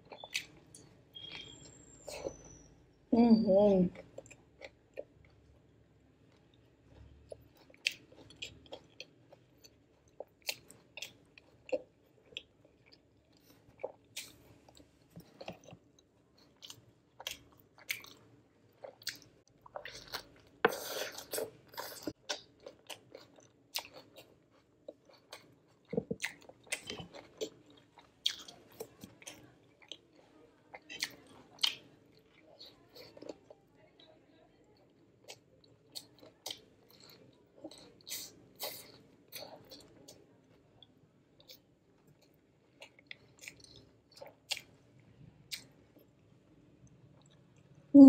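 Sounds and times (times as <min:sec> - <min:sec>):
person chewing and crunching: 0:06.3 - 0:33.6, 0:35.2 - 0:44.8, 0:45.5 - 0:46.1.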